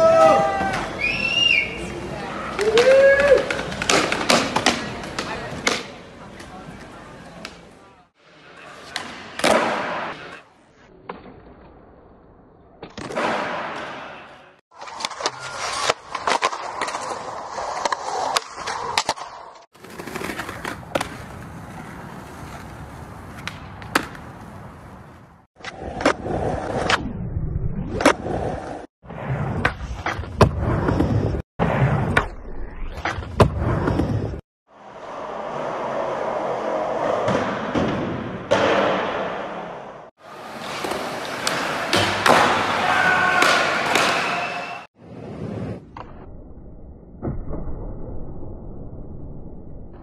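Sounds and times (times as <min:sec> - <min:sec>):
skateboards rolling on concrete: 0:00.0 - 0:10.5, 0:14.7 - 0:27.0, 0:33.0 - 0:45.9
skateboards clacking: 0:00.4 - 0:07.8, 0:19.8 - 0:25.2, 0:40.2 - 0:44.8.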